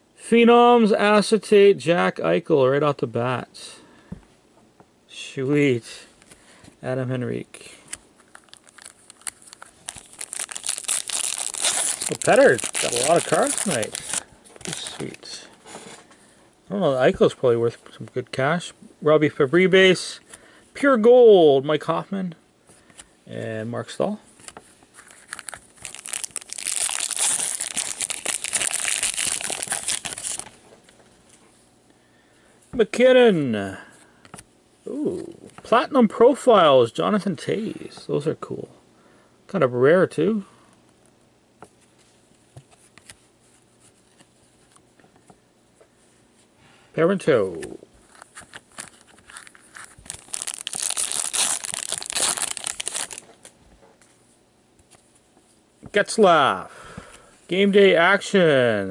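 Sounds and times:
foil wrapper tearing and crumpling: 0:08.3 - 0:15.1, 0:25.0 - 0:30.5, 0:48.8 - 0:53.2.

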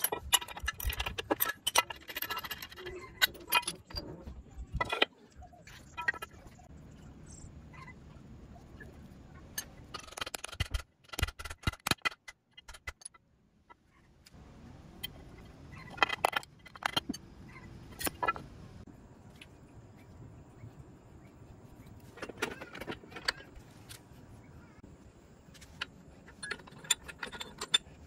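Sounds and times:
metal engine parts clinking: 0:00.0 - 0:06.7, 0:09.5 - 0:13.8, 0:15.0 - 0:18.6, 0:22.0 - 0:23.6, 0:25.6 - 0:28.0.

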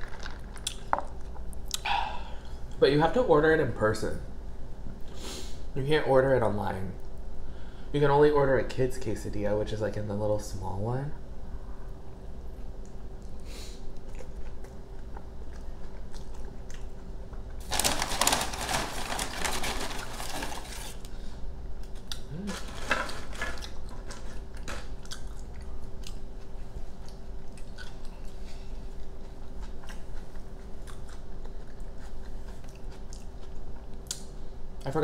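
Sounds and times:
crunching and rustling: 0:17.5 - 0:21.1
wet chewing mouth sounds: 0:29.0 - 0:34.2.

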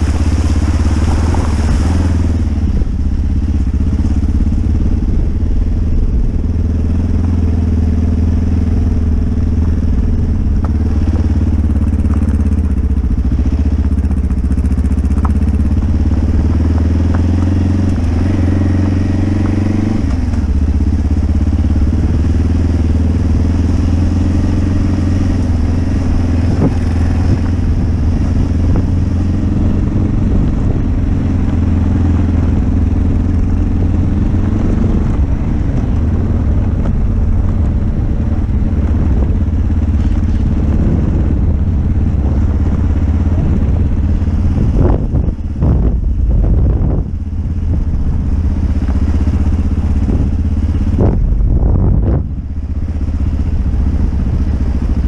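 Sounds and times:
tyre splashing through puddle: 0:00.0 - 0:02.6
motorcycle engine running: 0:00.0 - 0:55.0.

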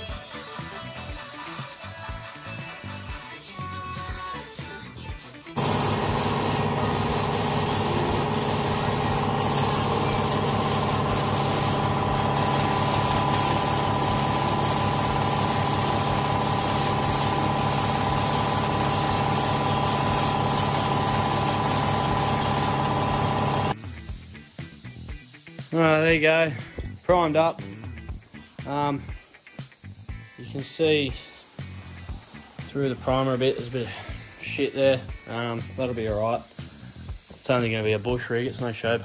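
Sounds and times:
steady hum: 0:05.6 - 0:23.8
spray gun hissing: 0:05.6 - 0:26.8, 0:28.3 - 0:39.0.

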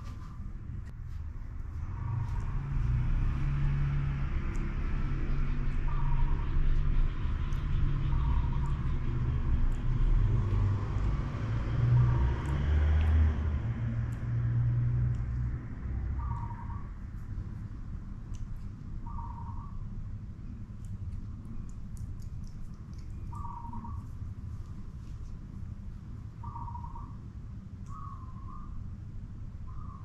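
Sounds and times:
motor vehicle rumbling: 0:00.0 - 0:30.0
faint bird chirps: 0:05.4 - 0:09.0, 0:16.2 - 0:17.0, 0:19.0 - 0:19.9, 0:22.9 - 0:24.2, 0:26.4 - 0:28.9, 0:29.6 - 0:30.0.

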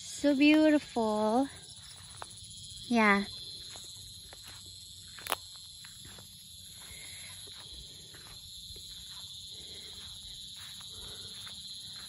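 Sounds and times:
insect chorus: 0:00.0 - 0:12.0
footsteps through grass: 0:01.1 - 0:12.0.

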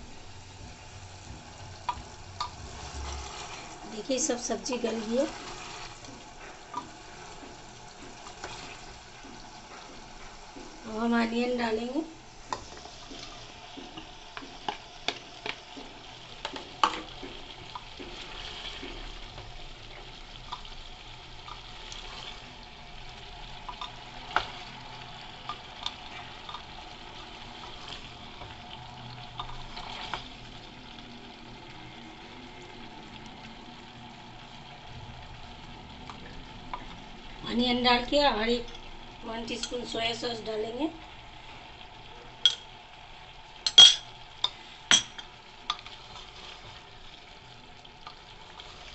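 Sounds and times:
food sizzling in pot: 0:00.0 - 0:48.9
wooden spatula scraping pot: 0:01.8 - 0:10.9, 0:25.6 - 0:28.6, 0:29.3 - 0:30.5, 0:45.7 - 0:47.0.

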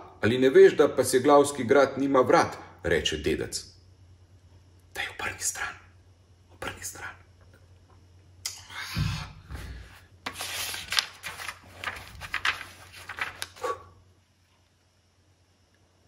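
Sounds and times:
cloth and paper rustling: 0:09.9 - 0:13.6.

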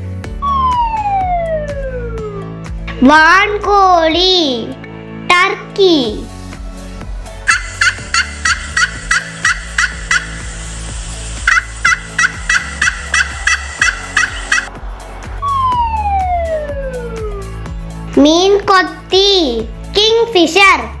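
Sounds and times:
long falling tone: 0:00.4 - 0:02.6, 0:15.4 - 0:17.6
wild turkey calls: 0:07.5 - 0:10.4, 0:11.5 - 0:14.7.

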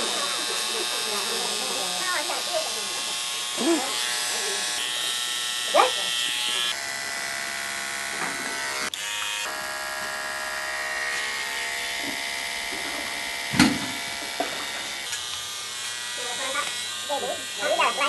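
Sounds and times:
electric hair clippers buzzing: 0:00.0 - 0:18.0.

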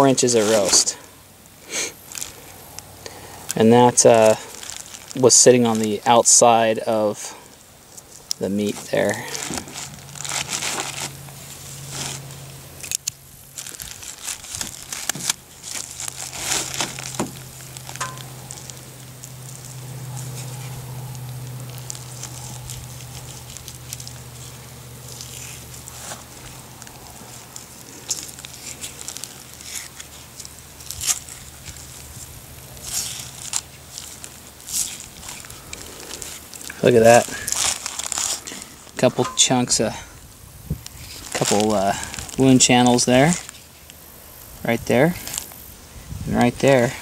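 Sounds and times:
plastic bag crinkling: 0:00.0 - 0:45.6
low steady hum: 0:00.0 - 0:47.0.

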